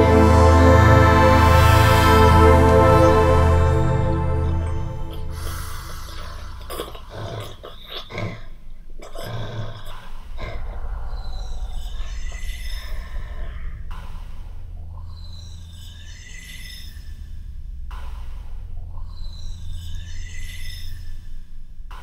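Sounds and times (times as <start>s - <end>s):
wavering high moaning tones: 0.0s - 6.7s, 10.3s - 17.6s
low rumbling drone: 0.0s - 7.2s, 10.2s - 22.0s
breath-like and growl-like effects: 0.0s - 8.4s, 9.0s - 18.5s.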